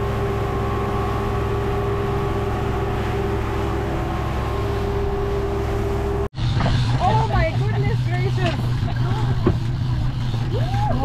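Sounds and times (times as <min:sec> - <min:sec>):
outboard engine running: 0:00.0 - 0:11.0
rush of wind and wake: 0:00.0 - 0:11.0.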